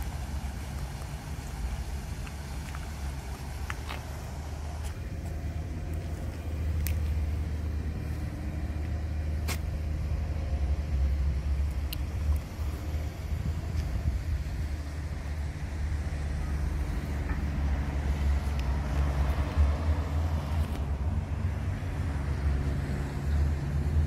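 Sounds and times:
low city rumble: 0.0 - 24.0.

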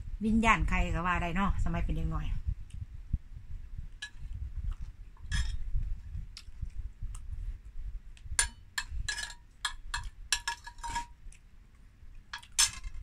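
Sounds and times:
metal spoon clinking on plate: 8.4 - 11.2, 12.3 - 13.0.

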